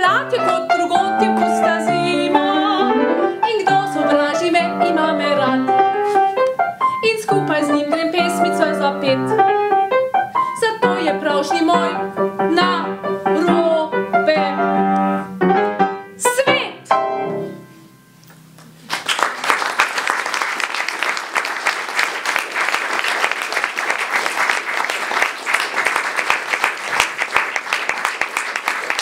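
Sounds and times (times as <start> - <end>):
woman singing: 0.0 - 5.9, 7.0 - 9.4, 10.6 - 14.8, 16.2 - 16.8
piano: 0.0 - 29.0
audience applause: 18.6 - 29.0.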